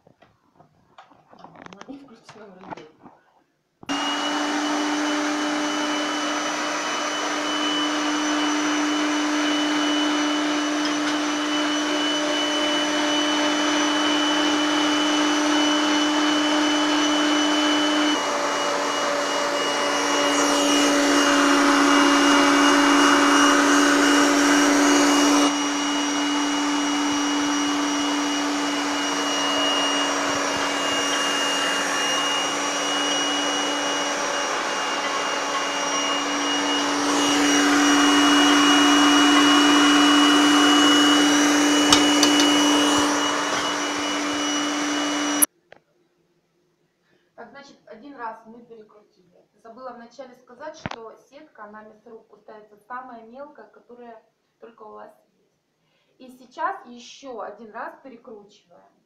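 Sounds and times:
electric meat grinder motor humming: 3.9 - 45.5.

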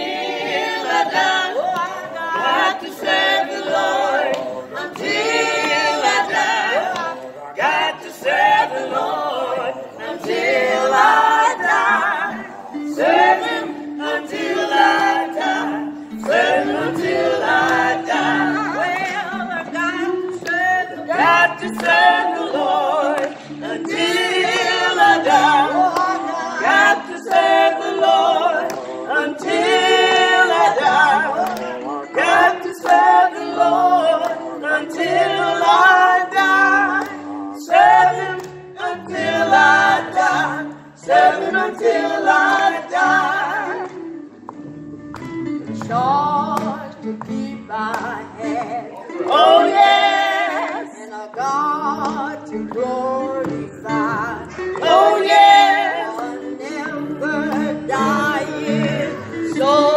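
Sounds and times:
group singing a cappella: 0.0 - 59.9.

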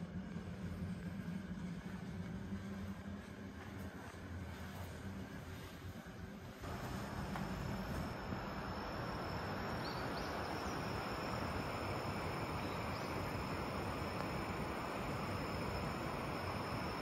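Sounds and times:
rushing hiss: 6.6 - 17.0
faint insect trill: 6.8 - 17.0.

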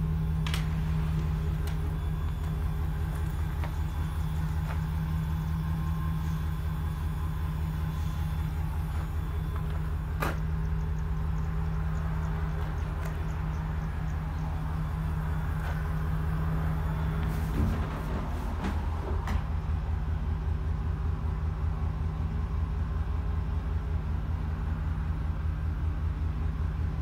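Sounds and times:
truck engine idling: 0.0 - 27.0.

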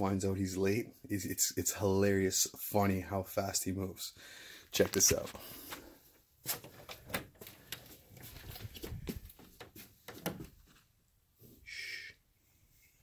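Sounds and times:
soft footsteps: 4.8 - 10.9.

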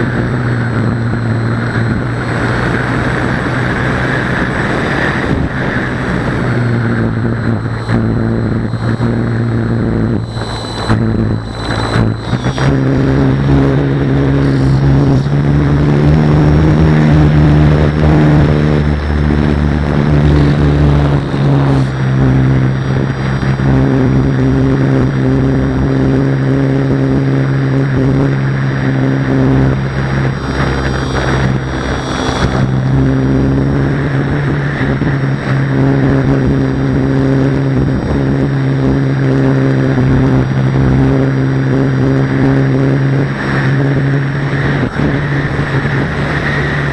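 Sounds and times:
wind buffeting microphone: 0.0 - 24.3
motor drone: 0.0 - 46.9.

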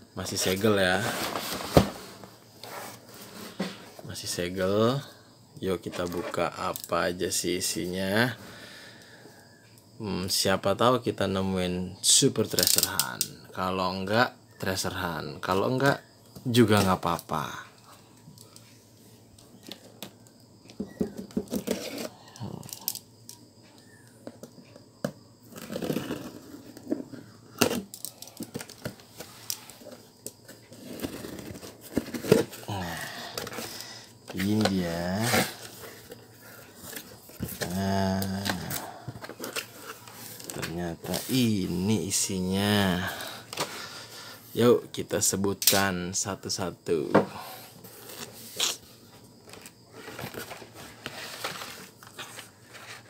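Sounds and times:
cardboard and plastic rustling: 0.3 - 4.1, 20.8 - 22.8, 25.4 - 41.9, 49.4 - 53.0.

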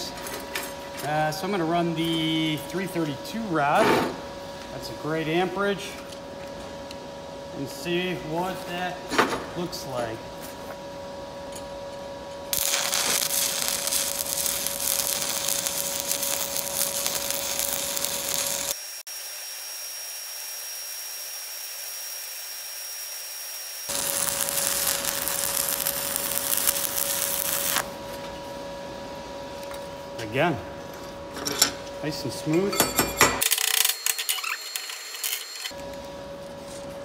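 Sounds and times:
arc welding crackling sizzle: 12.5 - 28.0.

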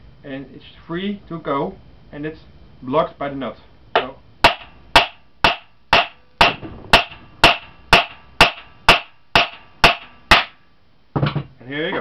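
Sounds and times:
hammer striking metal nut: 4.0 - 10.6.

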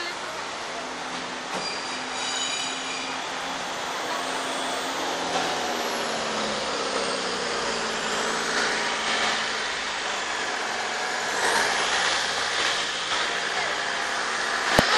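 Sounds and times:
steel wheels rumbling on track: 0.0 - 14.9.

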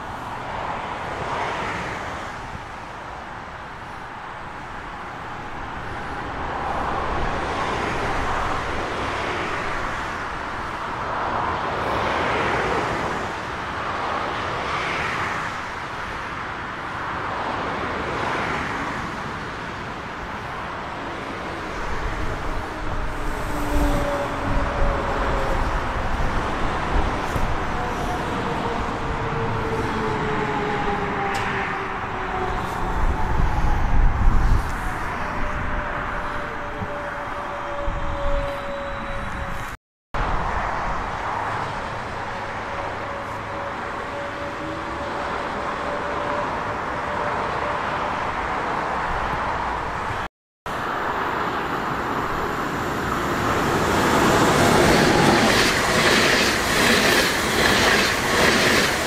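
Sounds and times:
electric train rumbling past: 21.0 - 39.7, 50.8 - 59.0
traction equipment whine: 33.9 - 39.8.

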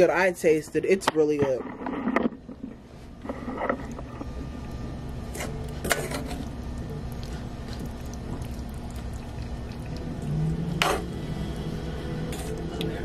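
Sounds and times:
low steady hum: 0.0 - 13.0
spoon stirring thick gravy: 5.1 - 10.2.

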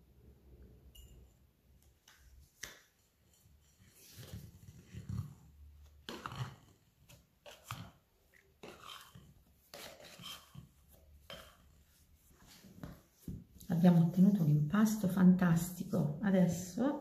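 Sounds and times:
spatula scraping bowl: 3.3 - 13.0.

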